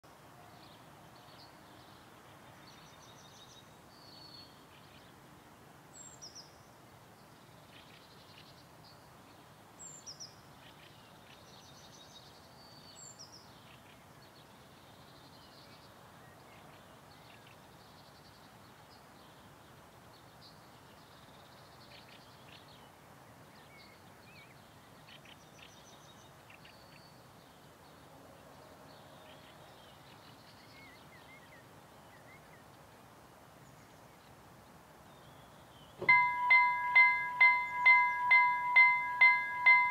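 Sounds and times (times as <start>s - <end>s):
faint background noise: 0.0s - 39.9s
birds chirping and calling: 36.0s - 39.9s.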